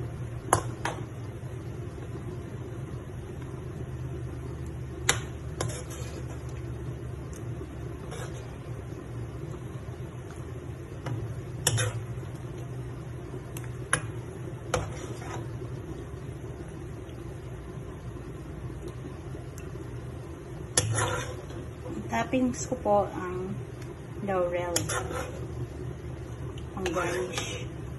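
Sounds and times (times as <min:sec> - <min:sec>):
steady low hum: 0:00.0 - 0:27.9
metal spoon scraping a wok: 0:05.6 - 0:06.5, 0:08.0 - 0:08.6, 0:11.6 - 0:12.2, 0:14.7 - 0:15.5, 0:20.7 - 0:21.6, 0:24.6 - 0:25.6, 0:26.8 - 0:27.7.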